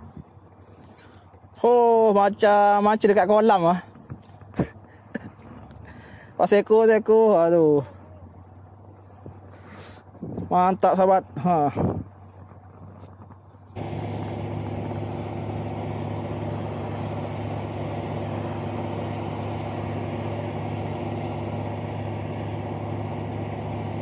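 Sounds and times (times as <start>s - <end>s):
motor humming: 13.5s - 24.0s.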